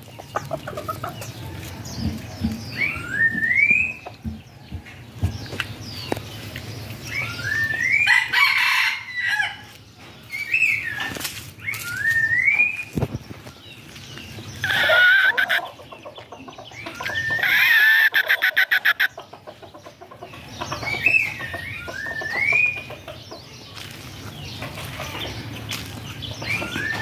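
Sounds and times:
rooster crowing: 8.0s - 9.6s.

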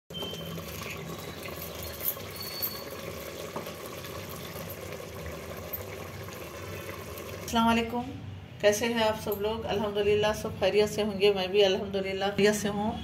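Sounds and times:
curry bubbling in a pot: 0.1s - 7.8s.

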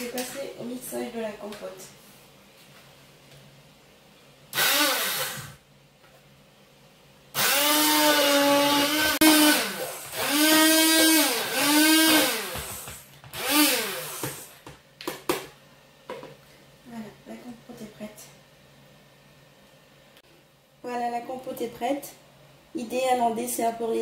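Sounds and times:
stick blender motor whine: 4.5s - 5.6s, 7.4s - 14.5s.

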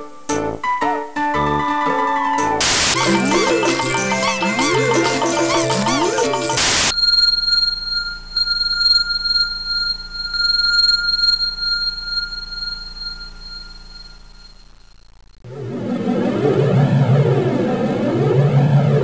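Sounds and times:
music: 0.0s - 6.6s
high-pitched ringing tone: 3.5s - 15.2s
low hum: 6.8s - 19.0s.

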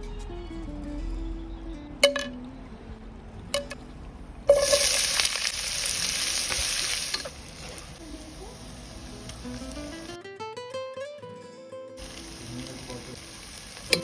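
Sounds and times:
onions sizzling in hot oil: 4.5s - 10.2s, 12.0s - 14.0s.

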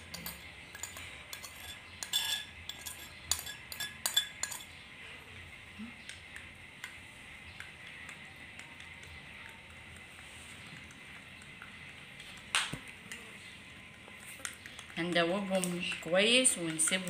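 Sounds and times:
metal spoon scraping a saucer: 0.0s - 4.8s
spoon clinking in a glass mug: 0.0s - 4.8s.

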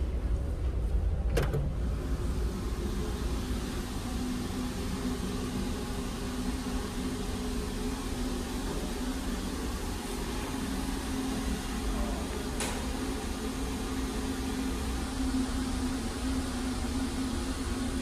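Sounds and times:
ship engine hum: 0.0s - 18.0s
ventilation hiss: 0.0s - 18.0s.

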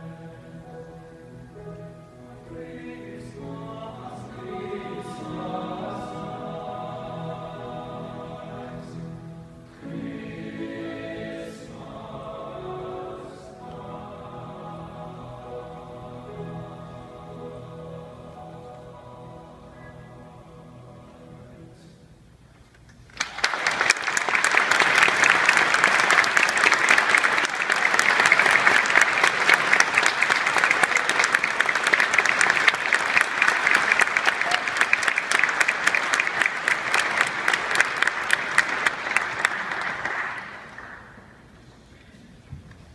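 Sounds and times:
audience applauding: 23.1s - 41.4s.

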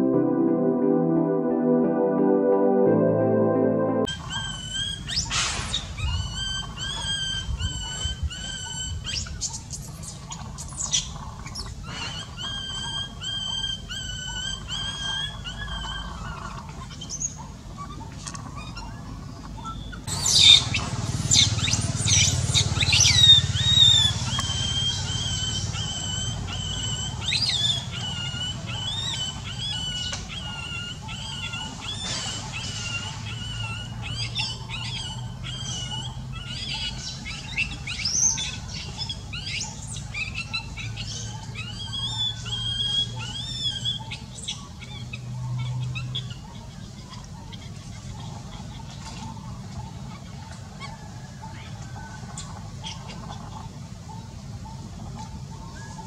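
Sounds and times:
baby monkey crying: 22.8s - 39.6s.

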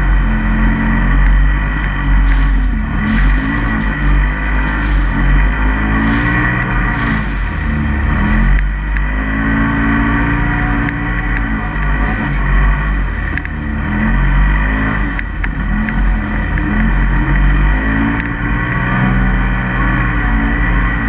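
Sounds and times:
off-road vehicle engine revving: 0.0s - 21.0s
steady rushing noise: 1.7s - 13.6s.

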